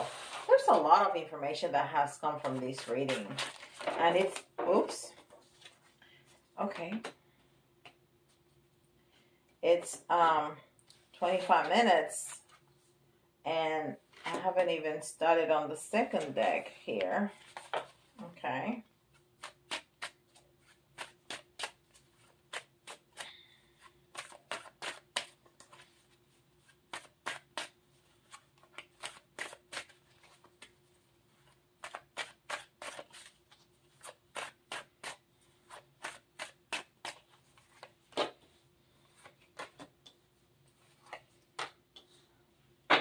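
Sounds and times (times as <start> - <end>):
cards being shuffled: 2.4 - 4.5, 39.1 - 40.0.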